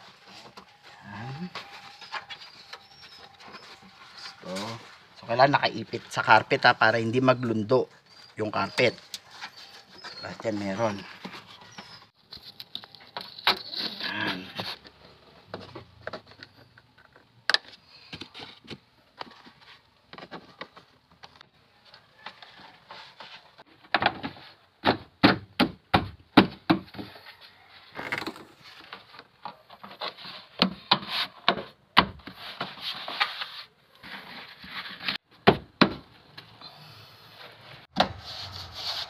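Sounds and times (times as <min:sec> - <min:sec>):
rubbing and rustling: 0:00.0 - 0:07.1, 0:07.8 - 0:16.6, 0:27.1 - 0:35.4, 0:37.3 - 0:39.0.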